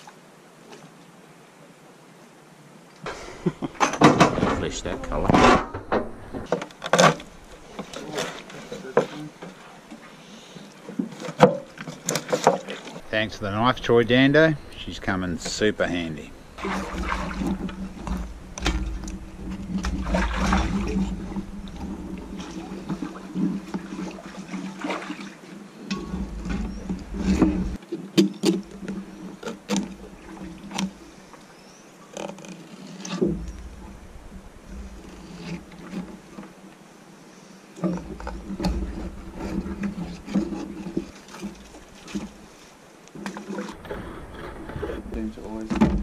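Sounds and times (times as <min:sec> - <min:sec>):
low rumble: 0:03.1 - 0:06.5, 0:13.0 - 0:23.9
low steady hum: 0:03.1 - 0:10.4, 0:12.8 - 0:27.8, 0:33.2 - 0:37.1.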